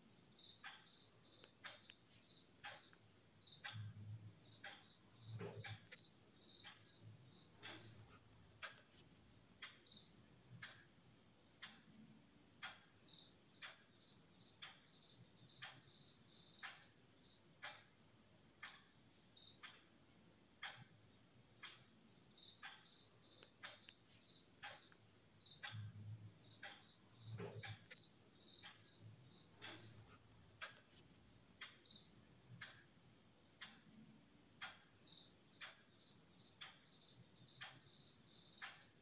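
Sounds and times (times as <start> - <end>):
faint clock ticking: 0.0 - 39.0
extra clicks: 4.6 - 7.0, 26.6 - 32.0.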